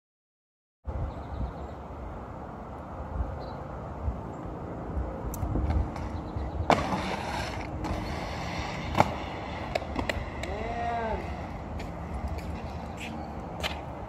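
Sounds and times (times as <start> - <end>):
skate wheels scraping on concrete: 5.4 - 14.0
skater falling on pavement: 5.6 - 12.9.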